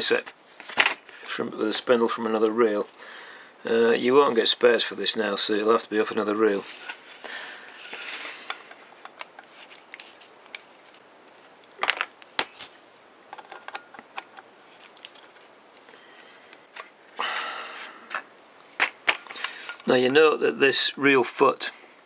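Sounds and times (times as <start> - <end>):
handling rustles: 0.0 - 3.0, 3.9 - 17.2.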